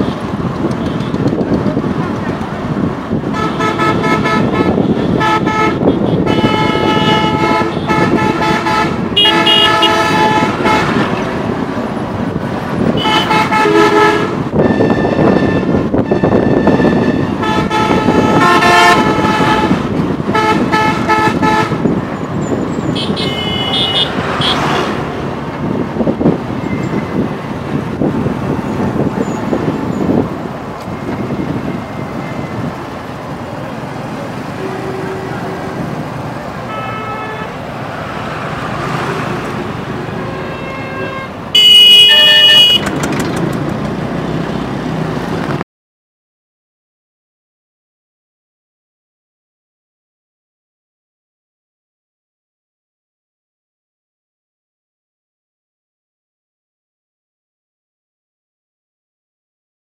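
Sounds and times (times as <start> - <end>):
road and wind noise: 0.0 - 45.7
vehicle horns honking: 3.2 - 11.2, 12.9 - 22.0, 22.9 - 25.0, 34.4 - 36.0, 36.6 - 37.7, 38.6 - 43.1
shrill horn: 3.4 - 10.9, 13.0 - 21.8, 36.7 - 37.6, 40.2 - 42.9.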